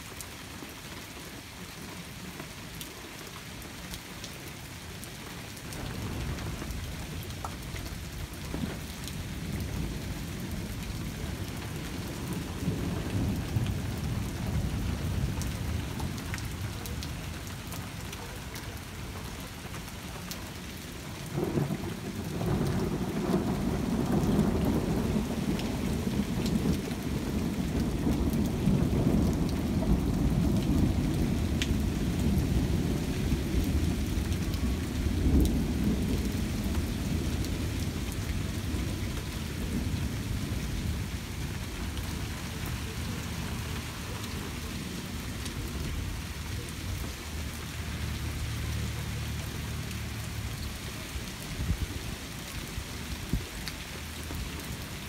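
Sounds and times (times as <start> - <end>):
rain falling: 0.0 - 55.0
thunder rumbling: 5.7 - 17.3, 21.3 - 47.1.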